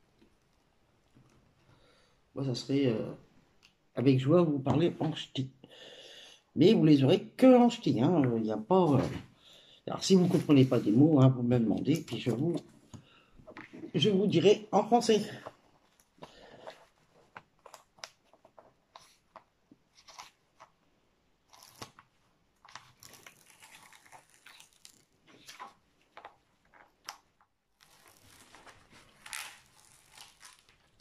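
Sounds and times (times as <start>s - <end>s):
paper crackling and crinkling: 21.4s - 27.2s, 27.8s - 31.0s.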